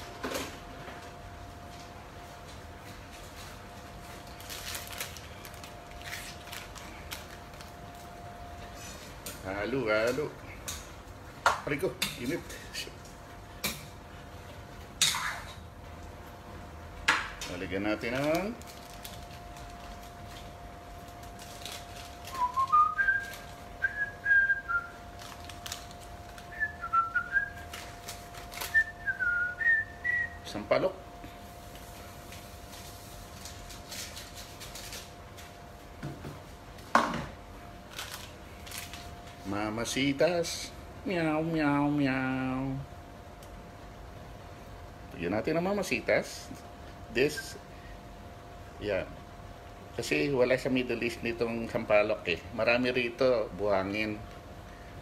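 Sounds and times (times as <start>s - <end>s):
gas burner hum: 5.1s - 33.8s
person whistling a tune: 22.3s - 25.0s, 26.5s - 27.6s, 28.7s - 30.4s.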